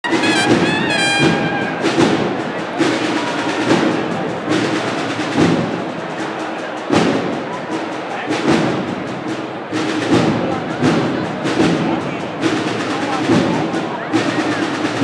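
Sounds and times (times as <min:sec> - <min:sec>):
held cornet note: 0:00.0 - 0:02.4
drums heavy beat: 0:00.0 - 0:15.0.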